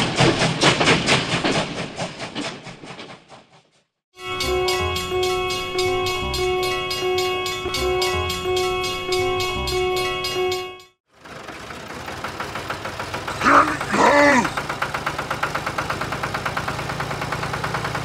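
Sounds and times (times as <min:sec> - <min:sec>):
rising and falling tones: 0:04.2 - 0:10.9
tractor engine idling: 0:11.1 - 0:18.0.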